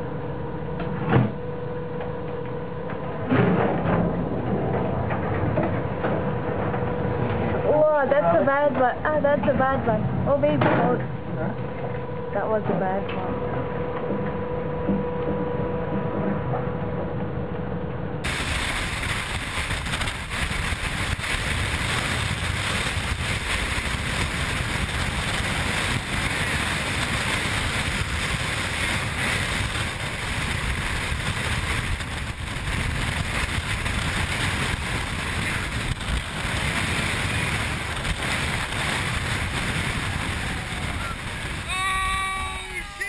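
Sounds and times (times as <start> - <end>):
storm wind: 13.6 - 43.0
wind buffeting microphone: 18.2 - 41.7
heavy seas: 18.2 - 43.0.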